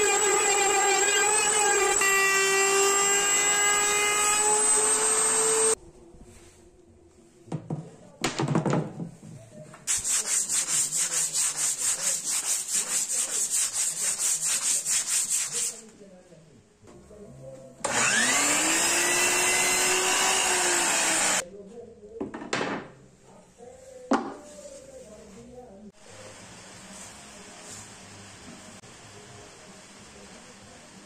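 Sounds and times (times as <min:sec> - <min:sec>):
miter saw motor whine: 0:00.0 - 0:05.8, 0:17.9 - 0:21.4
sandpaper sanding wood: 0:09.9 - 0:15.8.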